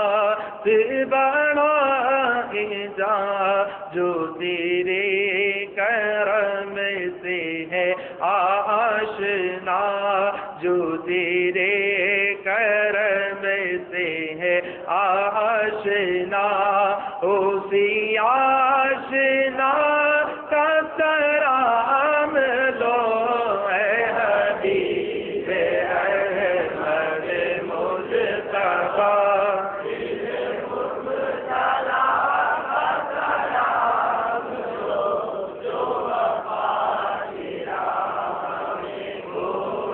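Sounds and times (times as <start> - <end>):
man chanting into microphone: 0.0 - 24.7.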